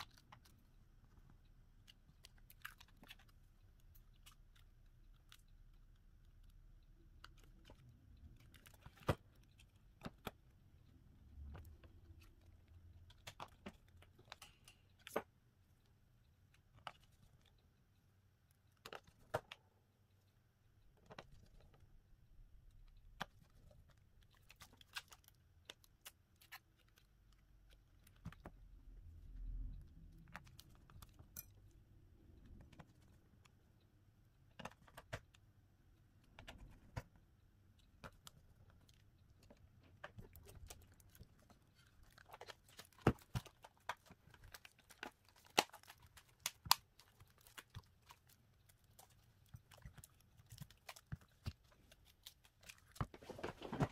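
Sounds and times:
small tools clicking and tapping: 0.0 - 17.8.

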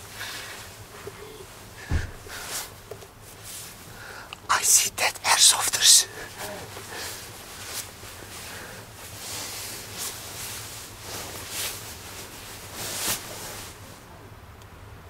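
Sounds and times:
duvet fabric rustling: 0.0 - 3.9, 6.6 - 14.0.

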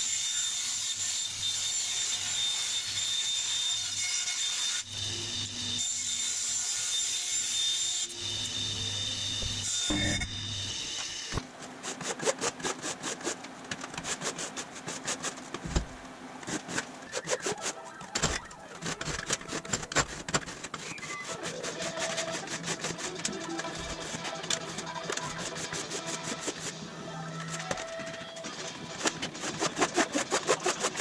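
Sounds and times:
bandsaw cutting metal: 0.0 - 13.4, 16.4 - 26.9, 27.5 - 31.0
scraping strokes on metal: 0.5 - 13.4, 18.7 - 26.8.

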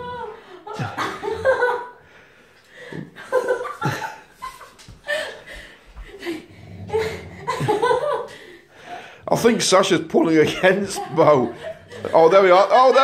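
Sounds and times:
person laughing: 0.0 - 2.0, 3.0 - 5.4, 6.1 - 8.5, 10.4 - 13.0.

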